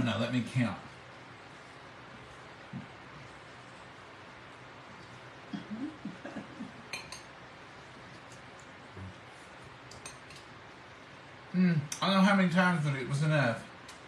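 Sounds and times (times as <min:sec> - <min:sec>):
fork clinking against bowl: 0:06.9 - 0:07.4, 0:09.9 - 0:10.5.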